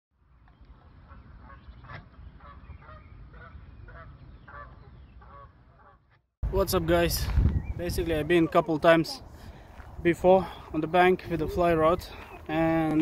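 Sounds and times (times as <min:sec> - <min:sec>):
waterfowl honking: 0:01.1 - 0:06.1
wind rumble on microphone: 0:06.4 - 0:08.4.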